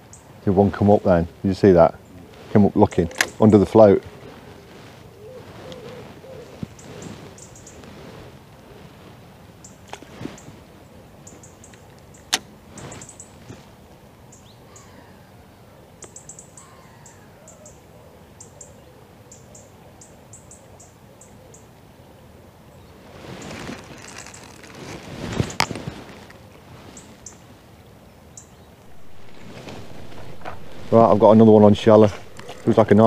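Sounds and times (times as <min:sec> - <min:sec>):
small birds chirping: 0:05.1 - 0:08.0, 0:09.6 - 0:13.7, 0:14.3 - 0:15.4, 0:16.0 - 0:17.8, 0:22.7 - 0:33.0
low background rush: 0:22.9 - 0:33.0.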